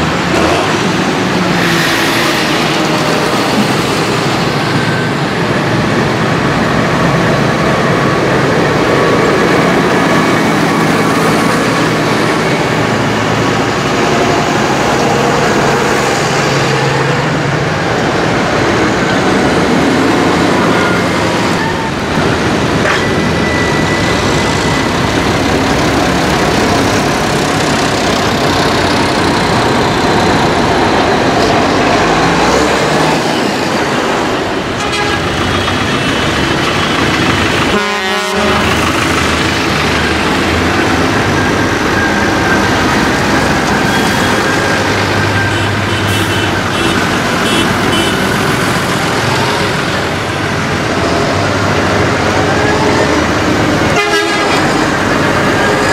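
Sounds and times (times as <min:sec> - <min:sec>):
tractor diesel engines passing: 0:00.0 - 0:55.9
vehicle horn tooting: 0:34.8 - 0:35.3, 0:37.7 - 0:38.7, 0:45.6 - 0:48.2, 0:53.9 - 0:54.7.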